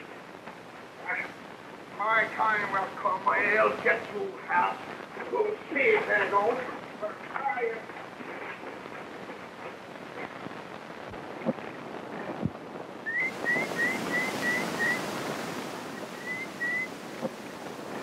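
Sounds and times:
steady hiss: 0:00.0 - 0:18.0
surf washing on shore: 0:00.0 - 0:18.0
bird chirping: 0:13.1 - 0:15.0, 0:15.9 - 0:17.0.

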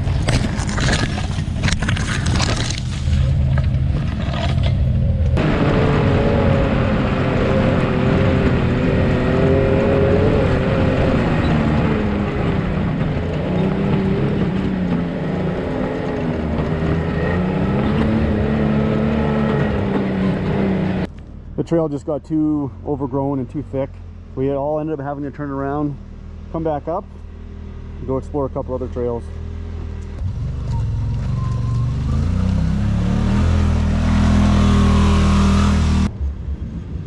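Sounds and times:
branches brushing vehicle: 0:00.0 - 0:04.8
utility vehicle engine running: 0:00.0 - 0:37.0.

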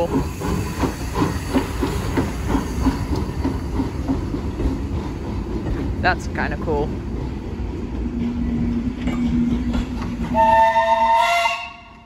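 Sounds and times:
steam hissing: 0:00.0 - 0:04.3
steam locomotive exhaust chuffing: 0:00.0 - 0:06.0.

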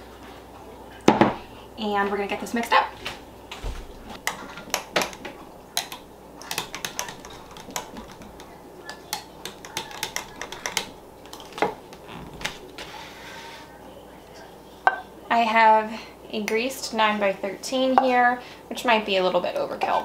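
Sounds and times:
wooden spoon tapping glass jug: 0:05.8 - 0:11.8.

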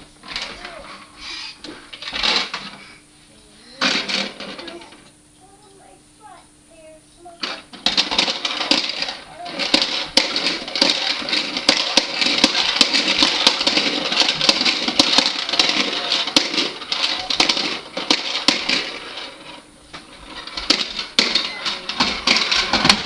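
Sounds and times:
plastic balls rattling in toy dome: 0:01.9 - 0:02.8, 0:03.8 - 0:05.0, 0:07.2 - 0:23.0.

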